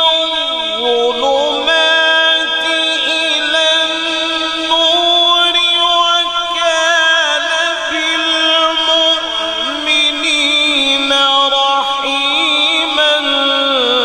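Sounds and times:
man reciting melodically: 0.0s - 14.0s.

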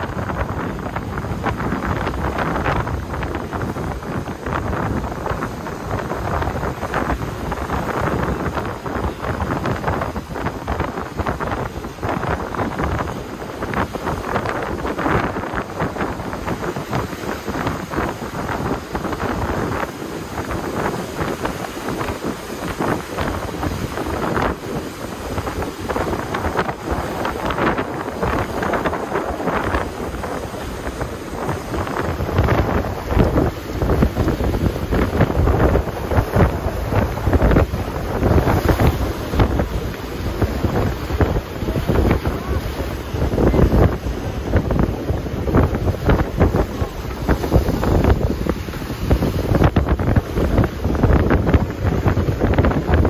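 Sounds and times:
surf breaking against rocks: 0.0s - 53.0s
wind gusting across microphone: 0.0s - 53.0s.

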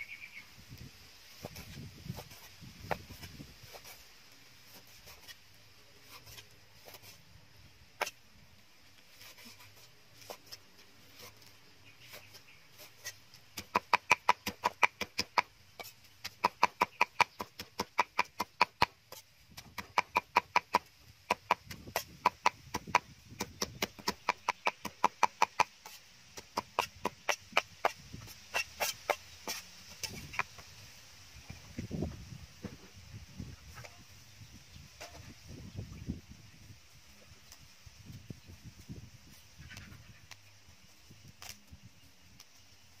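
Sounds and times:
cleaver chopping meat on wood: 13.6s - 15.5s, 16.2s - 19.0s, 19.6s - 25.7s, 26.4s - 28.0s.

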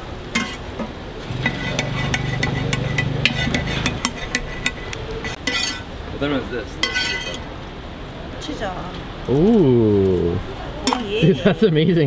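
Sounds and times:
metal utensils clicking on griddle pan: 0.4s - 5.8s.

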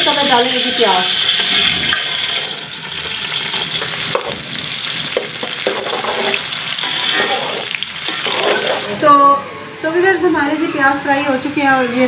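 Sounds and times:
onions sizzling: 0.0s - 9.0s.

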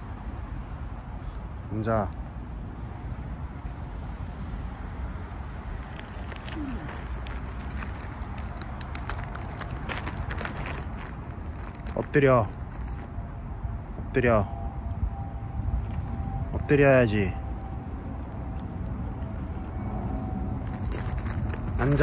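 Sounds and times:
street traffic rumble: 0.0s - 22.0s
small clicks and crackles: 5.8s - 13.1s, 18.3s - 22.0s.

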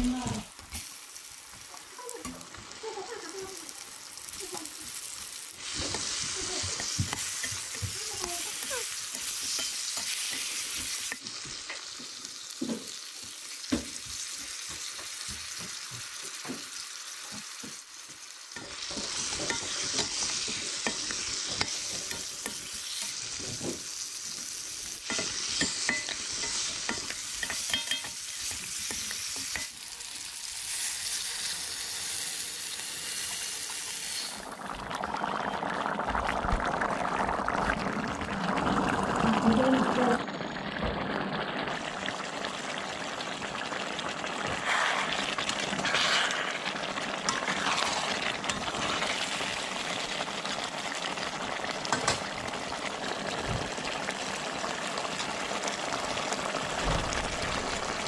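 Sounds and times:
food sizzling in oil: 0.0s - 58.0s
spatula scraping a pan: 5.6s - 11.8s, 18.6s - 23.9s, 25.0s - 29.8s, 44.5s - 49.5s
water poured into pan: 29.6s - 58.0s.

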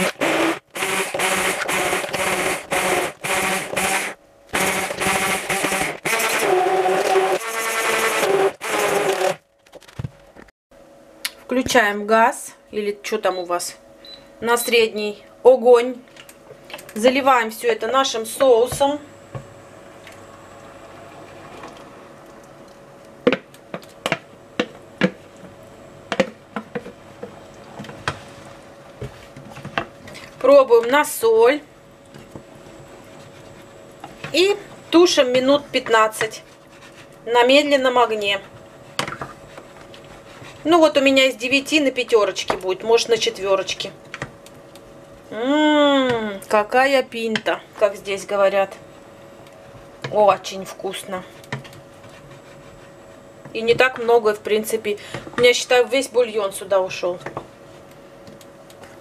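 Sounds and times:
immersion blender motor humming: 0.0s - 9.4s.

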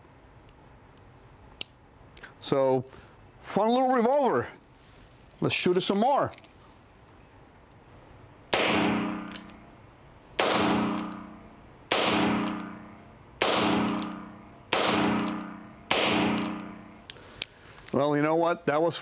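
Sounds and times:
revolver shots echoing indoors: 8.5s - 9.7s, 10.4s - 17.1s.

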